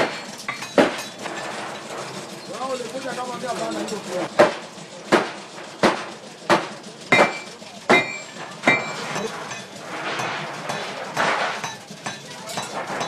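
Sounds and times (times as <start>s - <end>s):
hammer striking steel on anvil: 4.4s - 13.0s.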